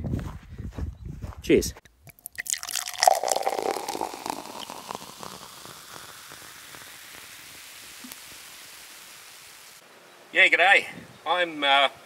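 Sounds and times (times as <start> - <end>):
fizzy drink pouring and fizzing: 2.1 - 9.8.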